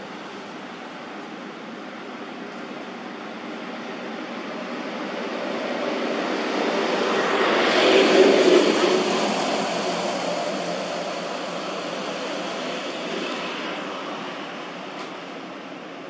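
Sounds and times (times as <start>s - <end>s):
vehicle passing by: 5.7s - 14.5s.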